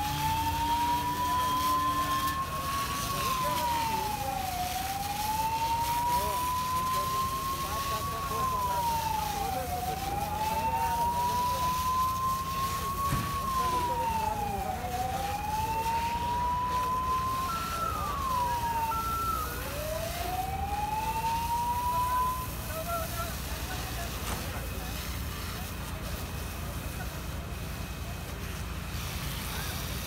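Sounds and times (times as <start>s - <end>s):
emergency siren wailing: 0.0s - 30.0s.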